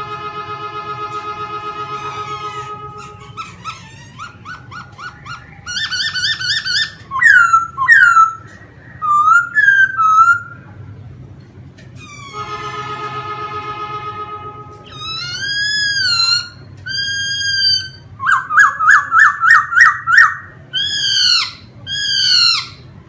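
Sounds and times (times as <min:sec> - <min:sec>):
bird singing whistled notes: 0:04.4 - 0:10.6, 0:14.9 - 0:22.8.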